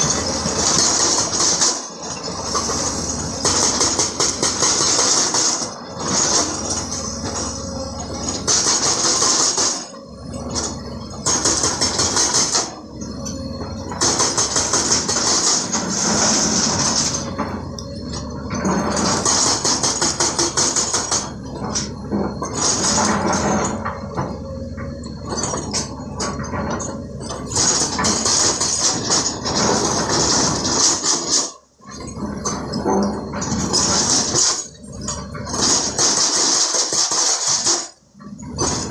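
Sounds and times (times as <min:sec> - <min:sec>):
diesel excavator engines rumbling: 0:00.0 - 0:38.9
hydraulic rock breaker hammering: 0:00.0 - 0:38.9.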